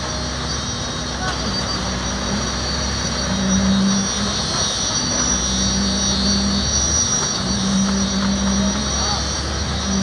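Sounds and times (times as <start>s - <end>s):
concrete pump engine drone: 0.0s - 10.0s
high whine: 0.0s - 10.0s.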